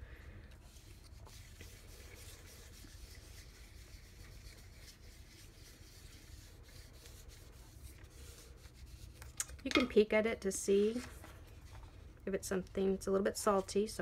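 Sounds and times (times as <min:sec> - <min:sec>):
hand baren rubbing paper: 0:00.0 - 0:09.4.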